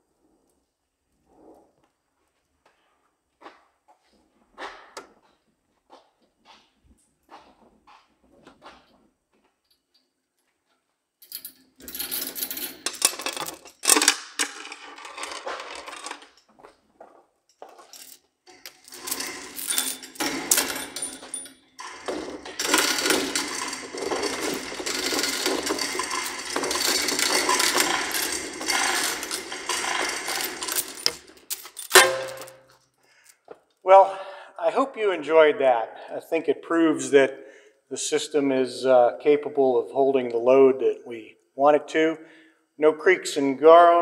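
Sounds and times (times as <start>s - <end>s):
hoist chain clattering and clicking: 11.2s - 16.5s, 17.5s - 33.4s.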